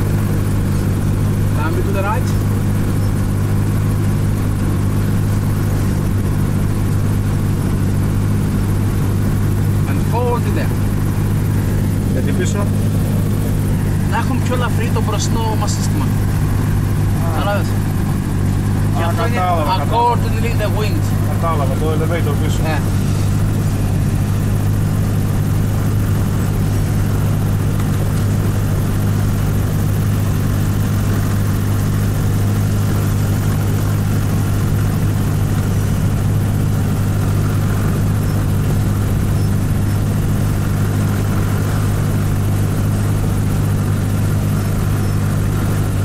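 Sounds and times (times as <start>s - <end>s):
propeller plane engine hum: 0.0s - 46.0s.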